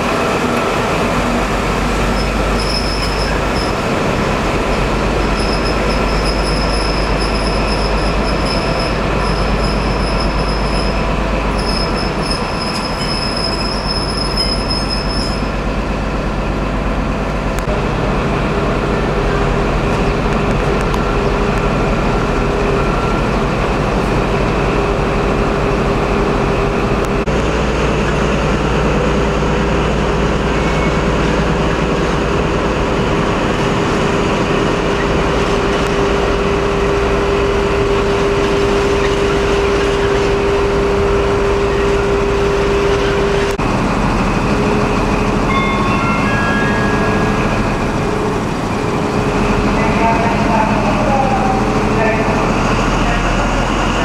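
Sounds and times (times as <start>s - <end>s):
diesel train engine running: 0.0s - 54.0s
steady engine whine: 15.6s - 54.0s.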